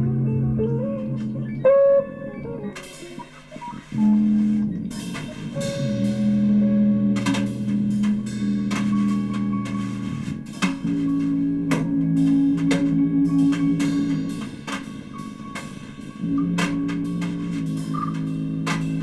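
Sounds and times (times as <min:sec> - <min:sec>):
plucked strings: 0:00.0 - 0:14.9
drums: 0:00.0 - 0:19.0
cymbals: 0:02.8 - 0:19.0.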